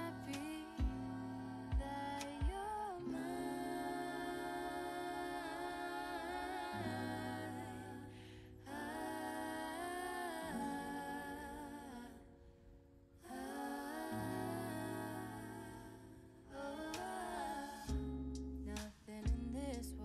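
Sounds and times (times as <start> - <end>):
soft chords and bass: 0.0 - 4.8, 17.9 - 20.0
person humming a melody: 0.0 - 8.0.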